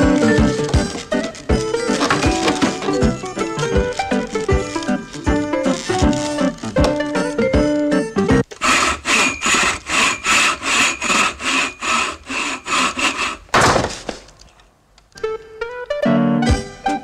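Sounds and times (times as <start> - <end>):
hand tool scraping metal: 0.0 - 6.8, 8.7 - 13.5.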